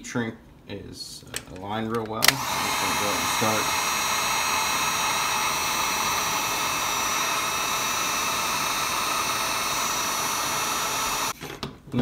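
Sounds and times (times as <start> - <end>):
heat gun blowing hot air: 2.2 - 11.4.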